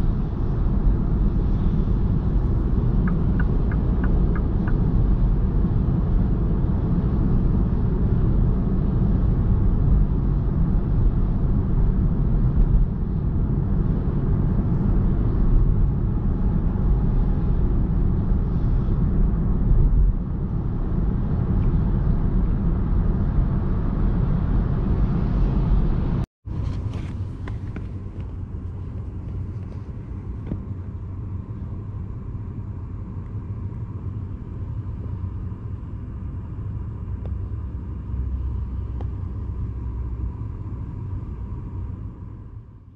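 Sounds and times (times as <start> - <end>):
road and tyre rumble: 0.0 - 42.9.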